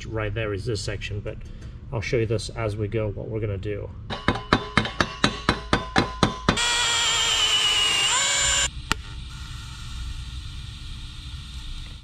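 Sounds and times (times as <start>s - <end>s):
hammer tapping metal: 4.1s - 6.6s
welding arc buzzing: 6.6s - 9.0s.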